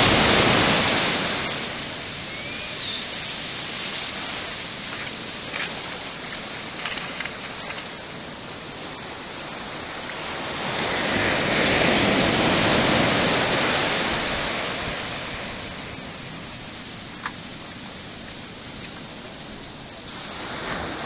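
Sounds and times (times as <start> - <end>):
ocean surf washing up: 0.0 - 21.0
faint clicks: 4.9 - 8.0.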